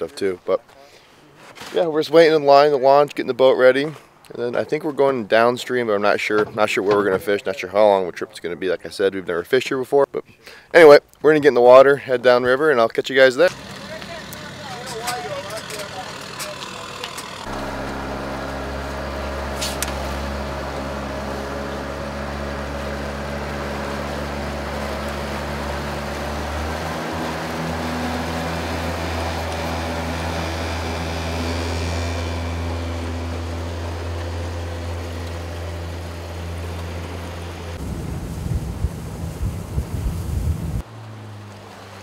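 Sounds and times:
boat outboard motor running: 0:13.4 - 0:42.0.

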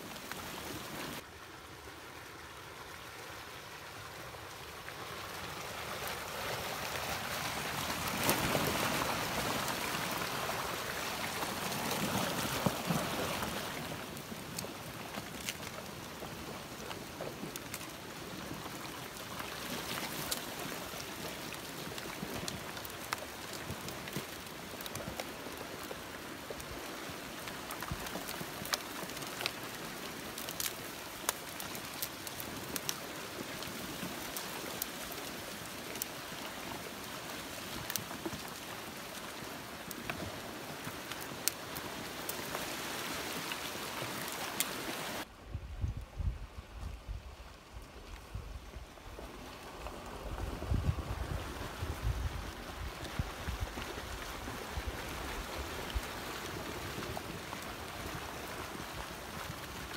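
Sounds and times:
flood debris rushing: 0:04.8 - 0:45.3.

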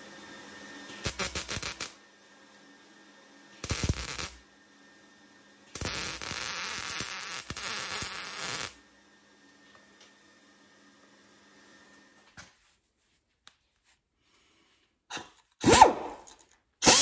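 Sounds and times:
welder arc crackling: 0:00.9 - 0:02.0, 0:03.6 - 0:04.4, 0:05.7 - 0:08.8.

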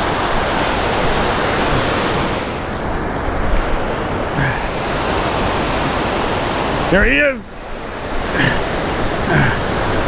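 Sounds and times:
ocean waves breaking: 0:00.0 - 0:10.0.

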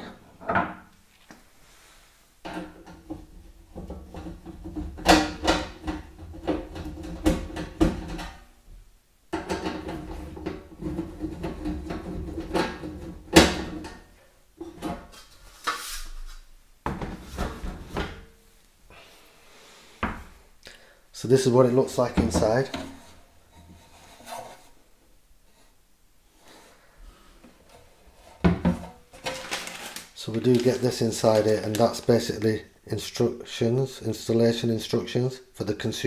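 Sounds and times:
metal cover plate handled with knocks: 0:02.4 - 0:08.4, 0:09.3 - 0:15.2.

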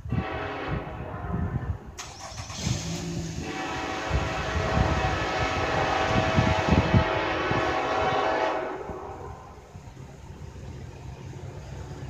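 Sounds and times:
locomotive air horn blast: 0:00.0 - 0:09.6
train rumble: 0:00.0 - 0:12.0.

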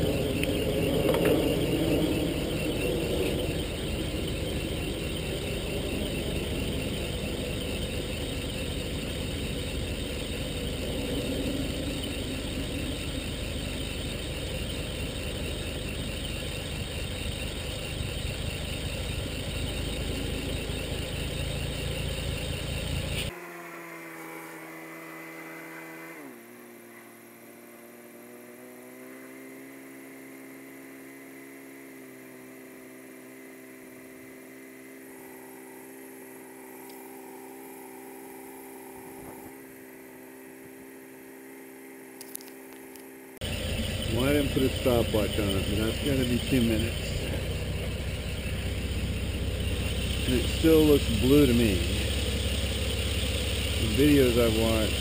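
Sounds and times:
car engine idling: 0:00.0 - 0:23.4, 0:42.1 - 0:55.0
steady hum of pitched tones: 0:00.0 - 0:55.0.

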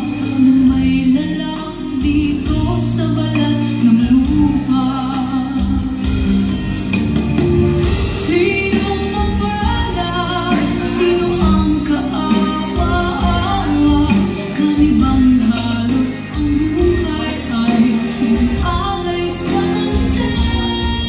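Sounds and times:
instrumental backing: 0:00.0 - 0:21.0
person singing: 0:08.0 - 0:21.0.

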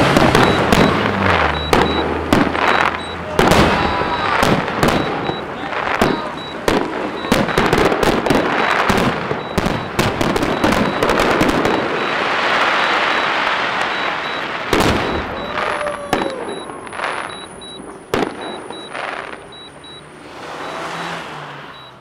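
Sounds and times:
loud firework bang: 0:00.0 - 0:17.3
fireworks bursts and crackle: 0:00.0 - 0:22.0.

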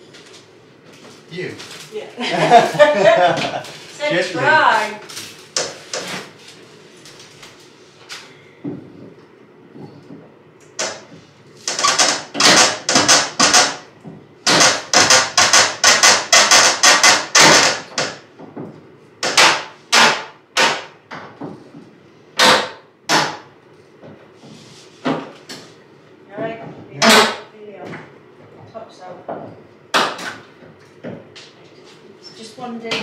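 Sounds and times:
hammer knocking on wooden panel: 0:11.7 - 0:21.6.

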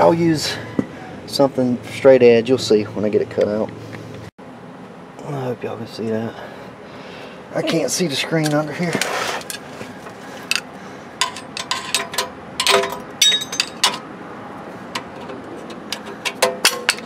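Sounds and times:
metal tool clicks and knocks: 0:10.5 - 0:14.0, 0:14.9 - 0:17.0
ringing metallic clink: 0:12.6 - 0:14.0.

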